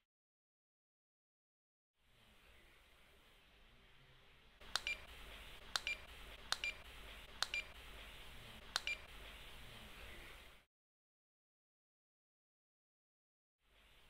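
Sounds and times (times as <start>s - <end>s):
barcode scanner beeps: 4.8s - 5.1s, 5.8s - 6.8s, 7.4s - 7.8s, 8.8s - 9.1s.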